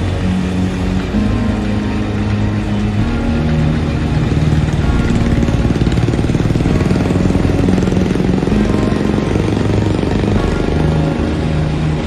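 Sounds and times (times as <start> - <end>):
combine harvester running: 0.0 - 12.0.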